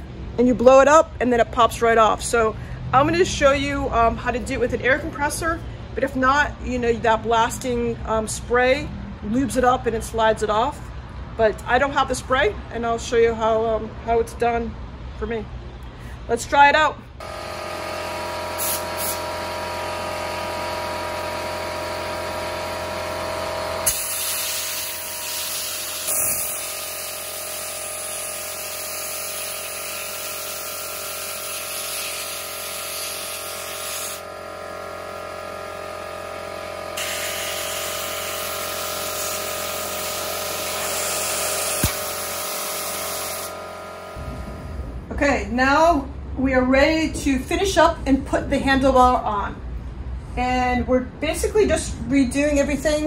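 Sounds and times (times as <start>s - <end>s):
compressed air hissing with whine: 17.8s - 34.3s, 36.9s - 44.9s.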